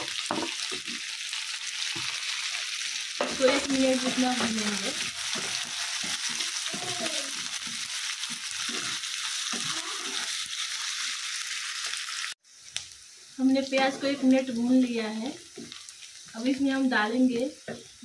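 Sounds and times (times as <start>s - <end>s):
onion sizzling in oil: 0.0s - 18.0s
wooden spatula scraping: 3.2s - 10.5s.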